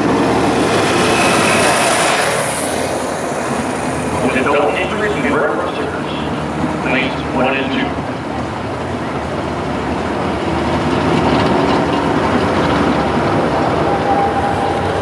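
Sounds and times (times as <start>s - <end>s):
steady whine: 0.0s - 10.8s.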